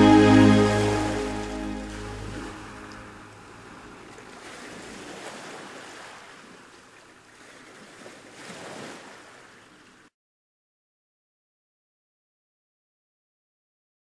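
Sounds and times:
ocean waves washing in: 0.0 - 10.0.

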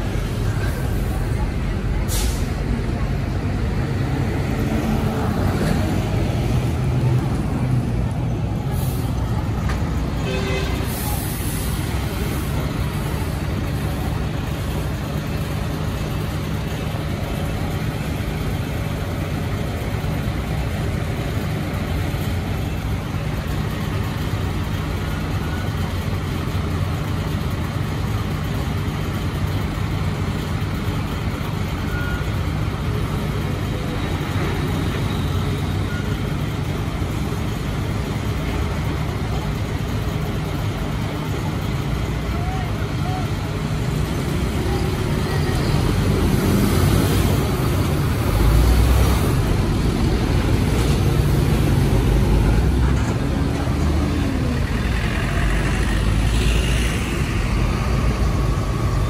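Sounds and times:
diesel engine idling: 0.0 - 59.0
passing street traffic: 0.0 - 59.0.

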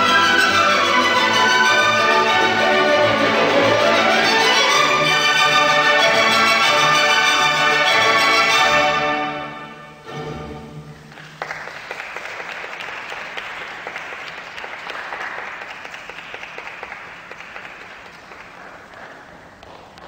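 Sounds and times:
audience applause: 11.1 - 20.0.

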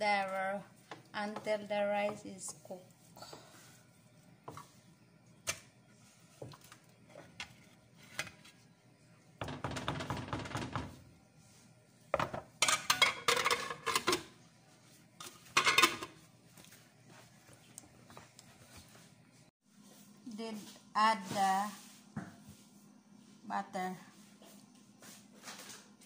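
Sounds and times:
metal pot and lid clattering: 12.6 - 14.3, 15.5 - 16.1.

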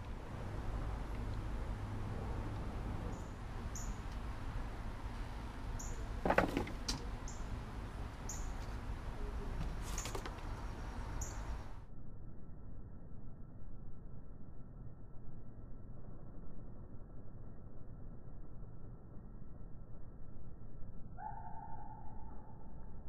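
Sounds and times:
steady low rumble: 0.0 - 21.2
short high chirp calls: 3.1 - 4.0, 8.3 - 8.6, 10.7 - 11.7
knock or rustle: 6.2 - 7.0.

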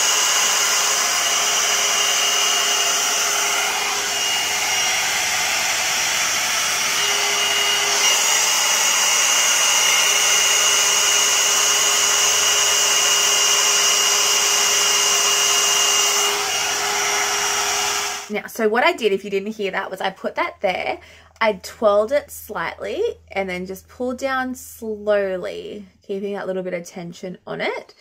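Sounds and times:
blow-dry brush air rush: 0.0 - 18.3
motor whine: 0.0 - 18.3.

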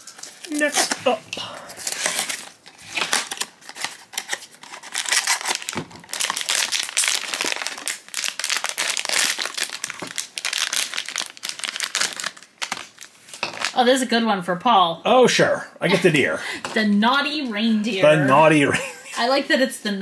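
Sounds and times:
foil bag crinkling: 0.0 - 13.8
foil bag tearing open: 1.8 - 13.8.

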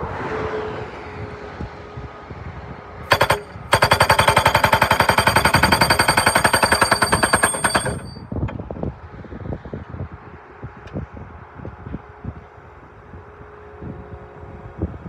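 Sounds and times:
post driver hammering: 3.1 - 8.2.

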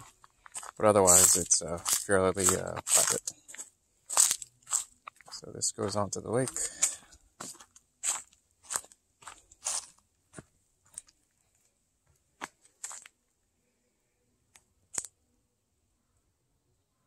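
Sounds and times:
footsteps crunching on dry leaves: 0.0 - 11.1, 12.4 - 13.1.

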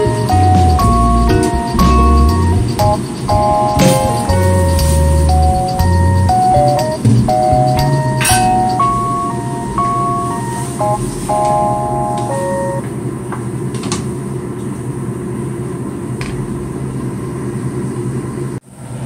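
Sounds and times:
background music: 0.0 - 12.8.

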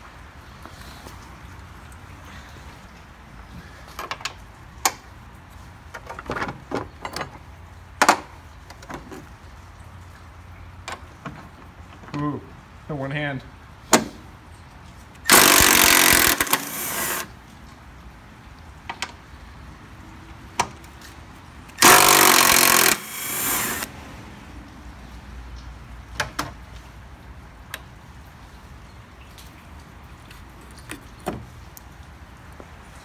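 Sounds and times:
parts clicking and knocking: 15.3 - 17.3, 21.7 - 23.9
power tool spinning bolts: 15.3 - 17.3, 21.8 - 23.9.

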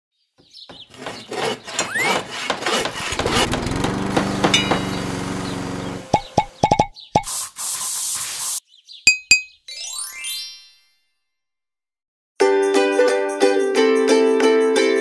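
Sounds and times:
scattered clicks and knocks: 1.8 - 5.1
motor-like buzz: 3.1 - 6.2.

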